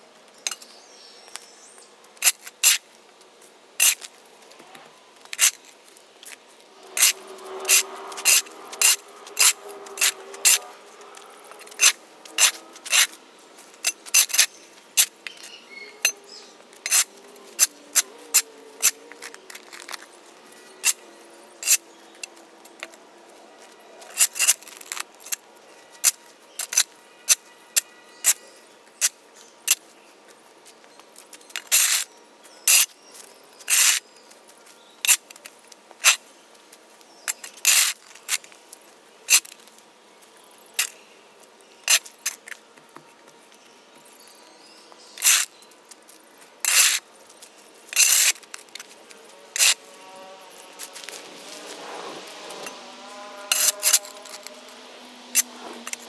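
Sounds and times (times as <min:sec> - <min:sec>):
shovel scraping concrete: 0:06.2 - 0:10.8, 0:11.5 - 0:13.2, 0:16.0 - 0:21.0, 0:37.4 - 0:38.4, 0:45.2 - 0:45.5, 0:46.6 - 0:47.0, 0:47.9 - 0:49.0, 0:49.6 - 0:49.9, 0:50.8 - 0:54.7.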